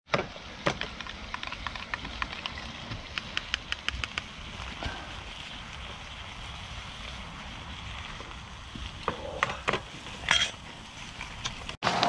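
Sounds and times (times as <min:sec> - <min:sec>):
food sizzling in pans: 0:00.3 - 0:11.8
metal clinks of pans and utensils: 0:10.2 - 0:10.6.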